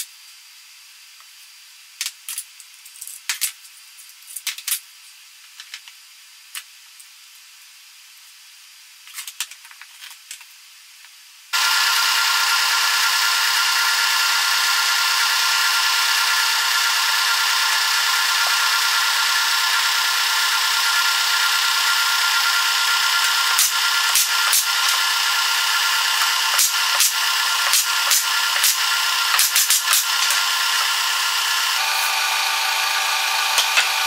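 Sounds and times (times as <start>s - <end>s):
air compressor whining: 11.6s - 34.0s.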